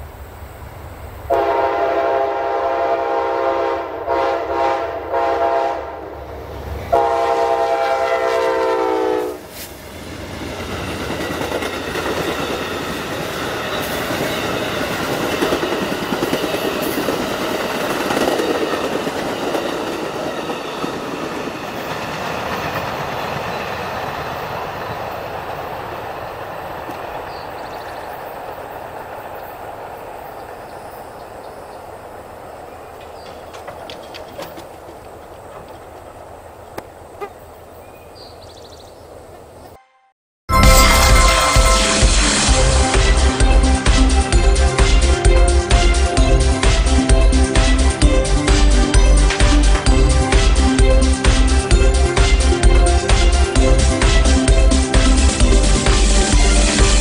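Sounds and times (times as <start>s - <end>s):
locomotive horn blasts: 1.3s - 6.0s, 6.9s - 9.5s, 40.5s - 44.2s
passenger cars rolling by: 9.5s - 37.1s.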